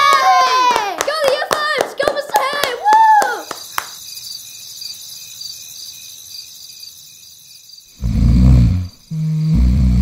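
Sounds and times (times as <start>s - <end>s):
crickets chirping: 2.5s - 10.0s.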